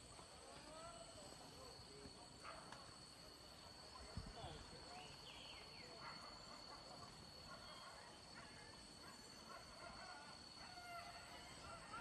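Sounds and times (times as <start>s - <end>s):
distant animal calls: 5.9s - 12.0s.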